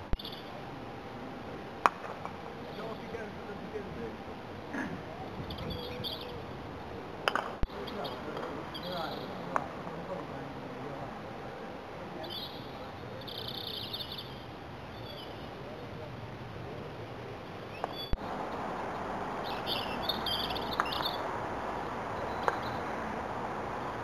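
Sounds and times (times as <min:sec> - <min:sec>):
outdoor background noise: 0:00.0 - 0:24.0
songbird trilling: 0:05.5 - 0:06.4, 0:12.2 - 0:15.5, 0:19.4 - 0:21.3.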